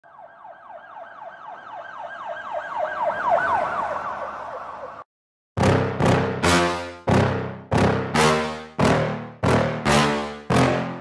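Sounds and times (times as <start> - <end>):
emergency vehicle siren yelping: 0.0 - 5.1.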